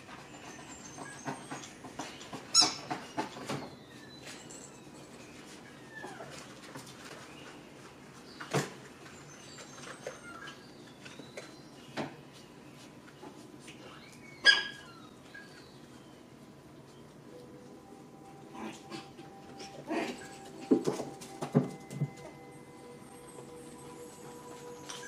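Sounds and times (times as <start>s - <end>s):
puppies squeaking and whimpering: 2.5s - 2.9s, 5.4s - 6.5s, 9.8s - 10.8s, 13.9s - 15.8s
puppy sharp cry: 14.4s - 14.9s.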